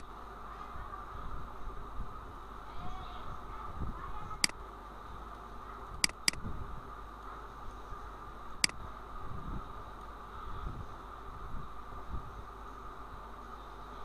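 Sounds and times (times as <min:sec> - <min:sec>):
faint room hum: 0:00.0 - 0:14.0
computer mouse clicks: 0:06.0 - 0:06.4.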